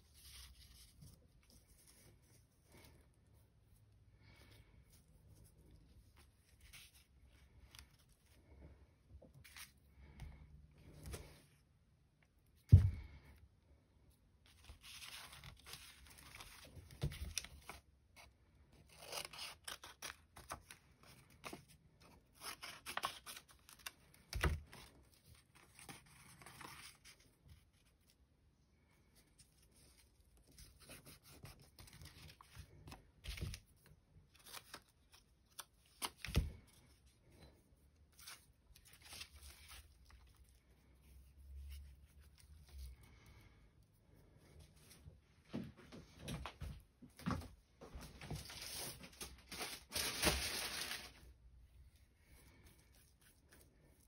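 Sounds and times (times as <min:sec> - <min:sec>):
paper rustling and tearing: 0:14.5 - 0:28.1, 0:38.0 - 0:42.9, 0:48.3 - 0:51.3
scissors snipping paper: 0:18.8 - 0:20.8.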